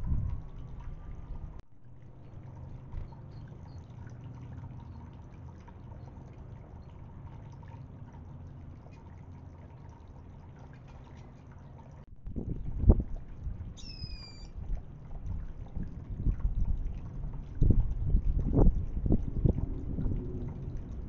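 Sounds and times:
fountain water trickling: 0:00.0 - 0:21.0.

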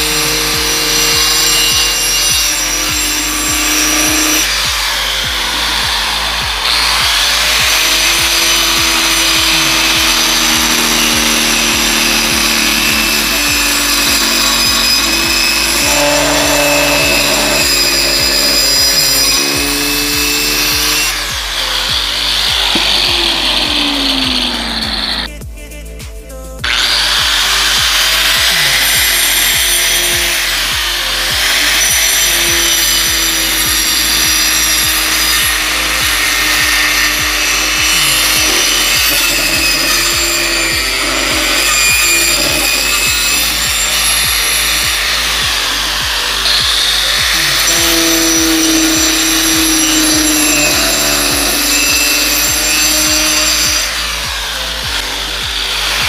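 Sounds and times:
angle grinder motor whine: 0:00.0 - 0:25.3, 0:26.6 - 0:56.0
saw blade cutting wood: 0:00.0 - 0:25.4, 0:26.6 - 0:56.0.

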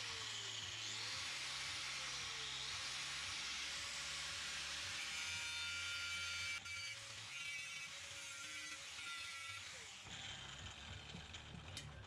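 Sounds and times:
angle grinder cutting steel: 0:00.0 - 0:12.0.

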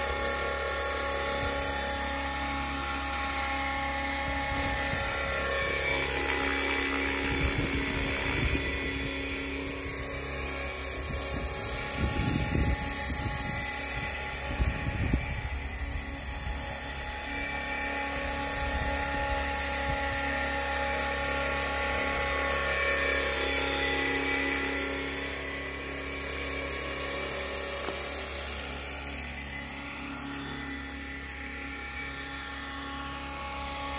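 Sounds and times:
model helicopter motor whine: 0:00.0 - 0:33.9
wind buffeting microphone: 0:07.2 - 0:10.0, 0:10.9 - 0:16.7.

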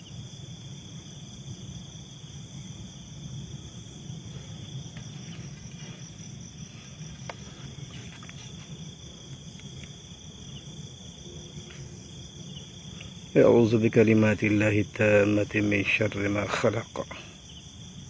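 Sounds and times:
night insects trilling: 0:00.0 - 0:18.0.

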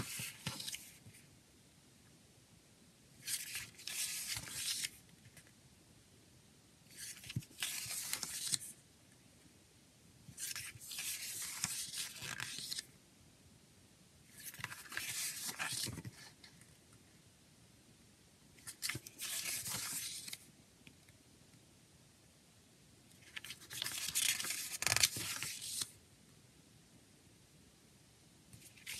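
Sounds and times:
paper pages rustling: 0:00.0 - 0:01.2, 0:03.2 - 0:05.5, 0:06.9 - 0:08.7, 0:10.4 - 0:12.9, 0:14.4 - 0:16.6, 0:18.6 - 0:20.4, 0:23.2 - 0:25.9, 0:28.6 - 0:28.9.

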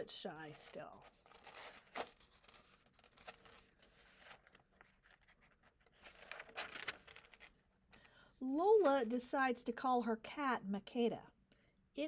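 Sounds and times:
paper pages rustling: 0:00.5 - 0:07.6.

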